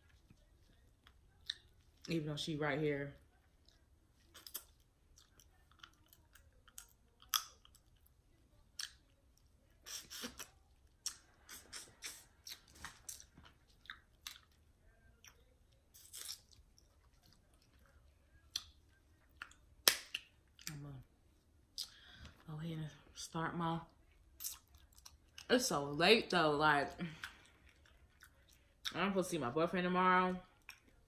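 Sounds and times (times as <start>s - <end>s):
wet chewing: 0.0s - 2.1s, 3.2s - 21.0s, 23.9s - 25.5s, 27.1s - 29.0s, 30.5s - 31.0s.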